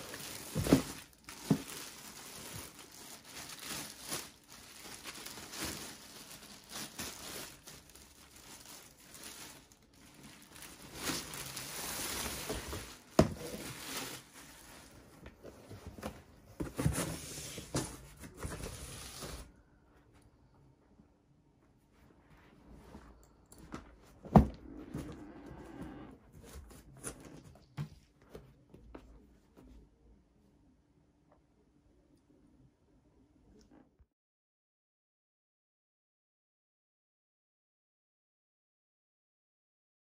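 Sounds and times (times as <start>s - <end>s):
plastic bag crinkling: 0.0s - 15.1s.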